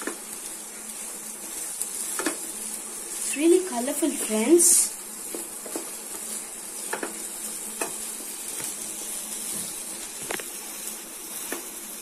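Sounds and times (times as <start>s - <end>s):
food sizzling in a frying pan: 0.0s - 12.0s
spatula tapping and scraping pan: 2.1s - 2.4s, 5.3s - 8.8s.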